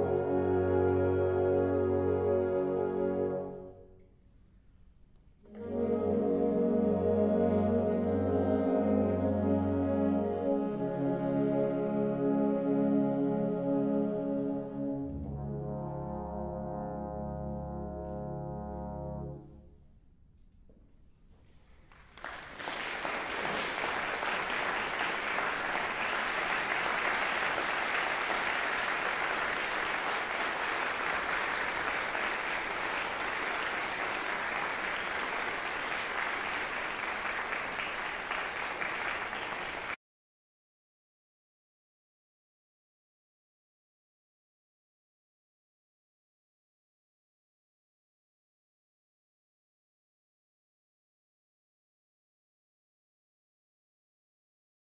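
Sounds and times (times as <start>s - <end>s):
audience applause: 21.9s - 40.0s.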